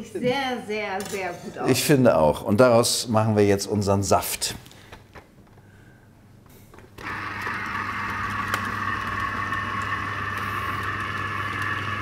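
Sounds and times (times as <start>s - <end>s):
citrus press motor humming: 7.0s - 12.0s.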